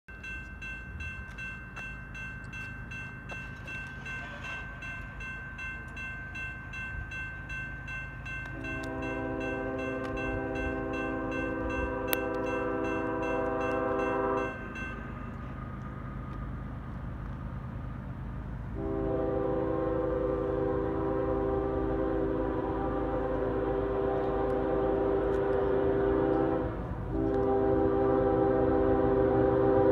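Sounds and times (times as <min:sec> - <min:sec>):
electronic crossing bell ringing: 0:00.1 - 0:15.5
locomotive horn blast: 0:08.5 - 0:14.8, 0:18.8 - 0:29.9.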